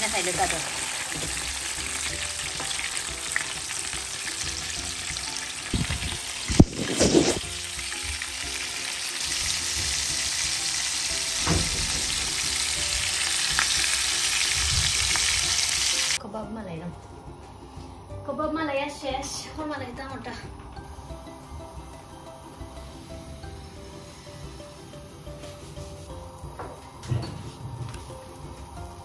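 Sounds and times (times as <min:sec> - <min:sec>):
patties sizzling in oil: 0:00.0 - 0:16.2.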